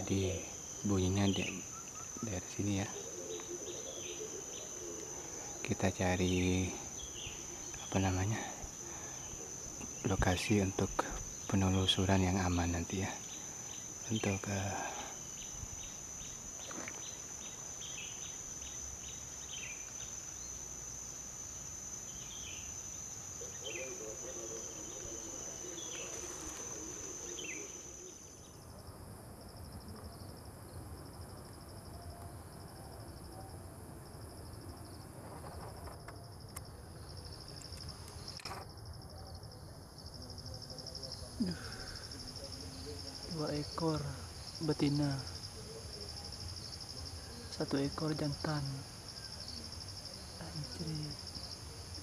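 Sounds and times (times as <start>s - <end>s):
high insect drone: 0.0s - 52.0s.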